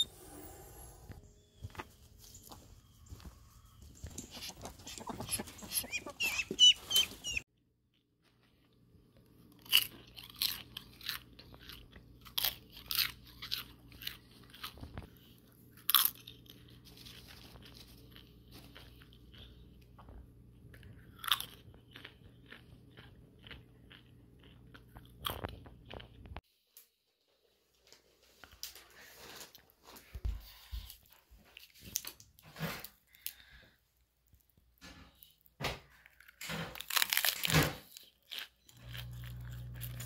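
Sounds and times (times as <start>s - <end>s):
chickens clucking: 3.7s - 7.4s
person chewing crunchy food: 8.4s - 26.4s, 34.2s - 40.0s.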